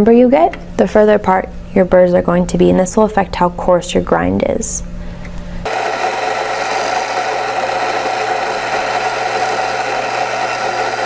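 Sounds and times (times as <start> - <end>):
coffee grinder grinding: 5.7 - 11.0.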